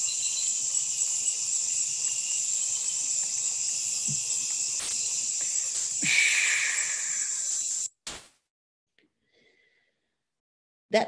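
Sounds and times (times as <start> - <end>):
night insects chorus: 0.0 - 7.9.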